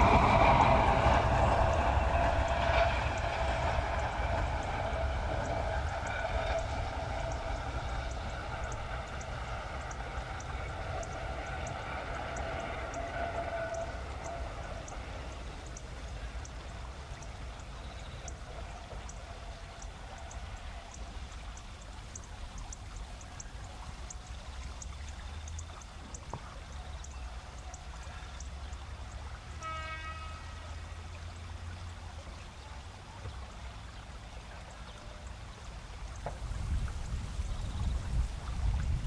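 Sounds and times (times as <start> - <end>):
train horn blast: 0.0 - 15.4, 29.5 - 31.2
river rapids rushing: 0.0 - 17.8
insects chirping: 2.7 - 29.3.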